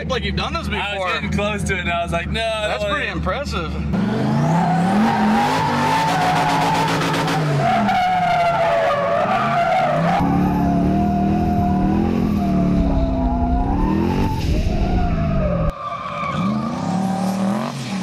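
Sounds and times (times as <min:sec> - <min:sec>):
car engine revving: 0:03.8 - 0:15.7.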